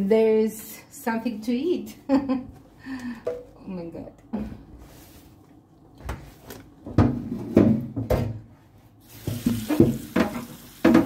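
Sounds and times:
tap running into steel sink: 0:09.2 - 0:11.0.

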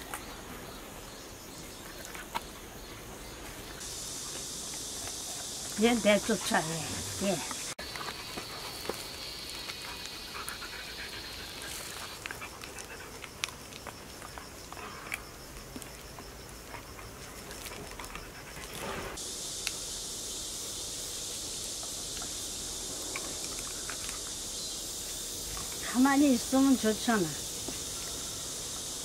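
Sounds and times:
insect drone: 0:00.0 - 0:29.0
dog panting: 0:04.8 - 0:13.6.

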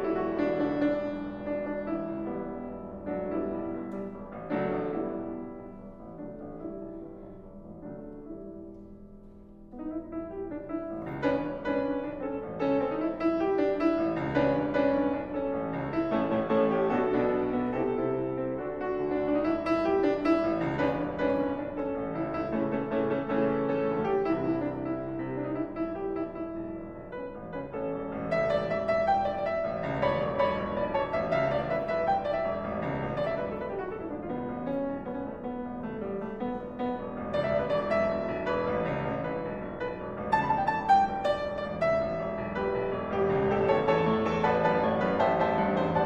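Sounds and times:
solo grand piano: 0:00.0 - 0:46.0.

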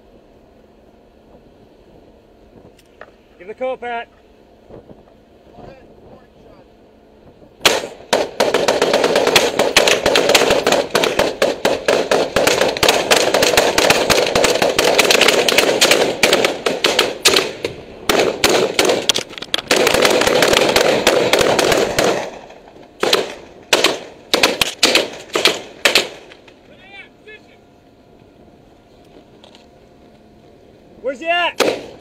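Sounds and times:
rapid rifle fire: 0:07.6 - 0:26.3, 0:31.6 - 0:32.0.

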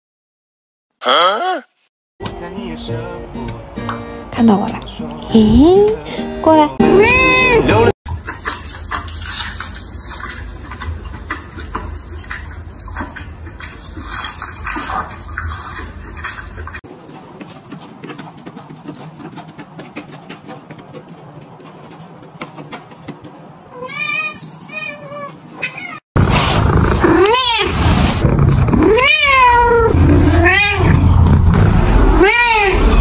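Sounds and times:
cat meowing: 0:23.8 - 0:26.0, 0:28.8 - 0:31.0, 0:32.2 - 0:33.0.

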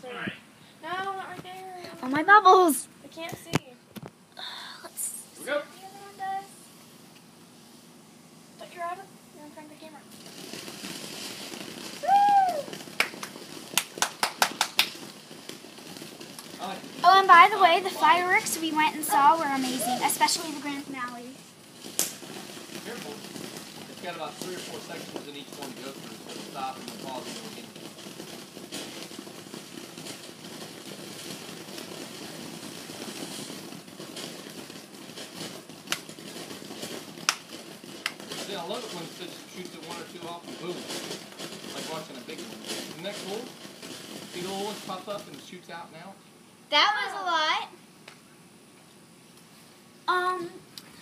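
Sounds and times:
firework fountain hissing: 0:00.0 - 0:51.0
sharp crackling pops: 0:05.9 - 0:49.5.

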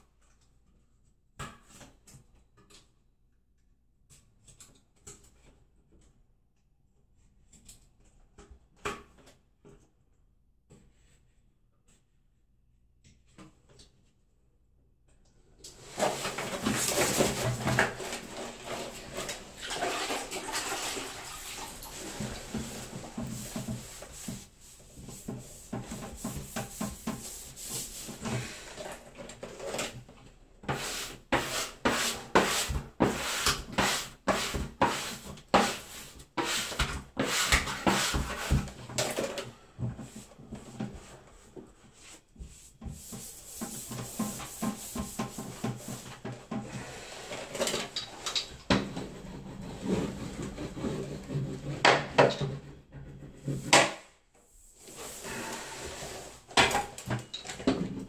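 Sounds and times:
wet sponge scrubbing wallpaper: 0:15.7 - 0:29.0, 0:30.6 - 0:38.8, 0:40.0 - 0:47.7, 0:54.5 - 0:56.5.

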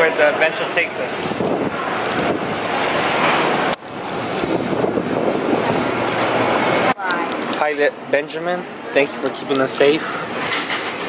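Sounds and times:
jet airliners rushing: 0:00.0 - 0:07.6.

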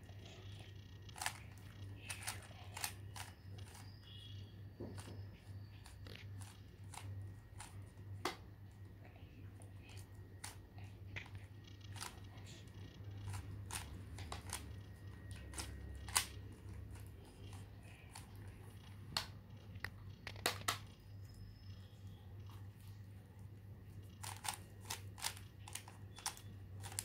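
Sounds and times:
steady low hum: 0:00.0 - 0:27.0
puzzle cube clicking: 0:00.3 - 0:03.9, 0:09.9 - 0:21.0, 0:24.1 - 0:27.0.

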